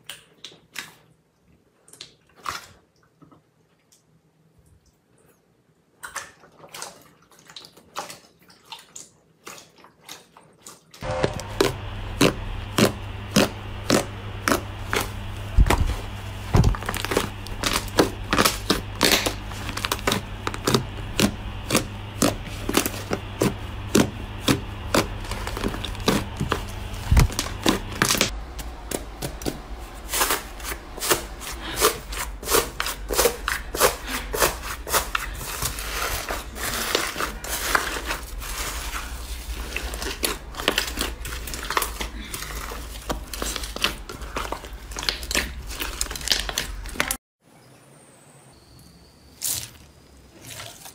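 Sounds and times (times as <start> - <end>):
steady low hum: 11.0 - 36.4
slime squelching and popping: 39.6 - 47.2.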